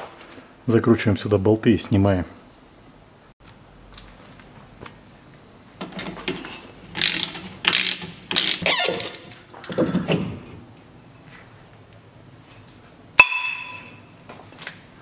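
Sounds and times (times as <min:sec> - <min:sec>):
ratchet wrench clicking: 0:07.0 - 0:09.2.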